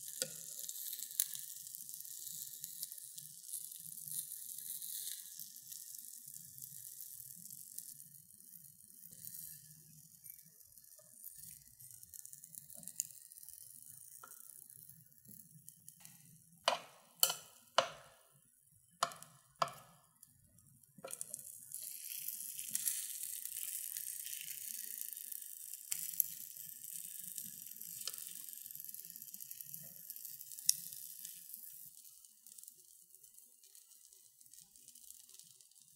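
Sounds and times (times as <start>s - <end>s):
food sizzling on hot plates: 0.0s - 35.9s
metal tongs tapping plates: 16.7s - 18.1s.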